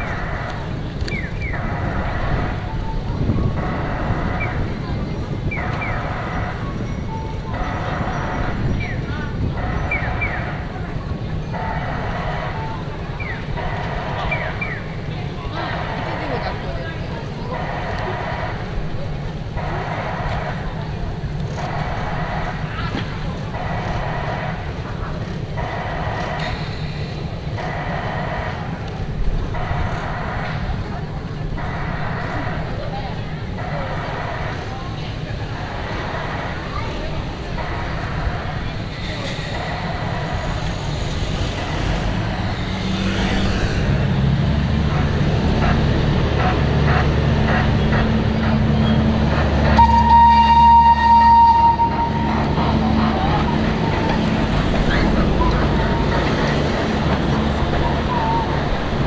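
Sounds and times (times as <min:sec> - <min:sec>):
tram engine rumble: 0:00.0 - 0:59.0
steam whistle toot: 0:49.7 - 0:52.6
recurring tone: 0:49.7 - 0:57.0.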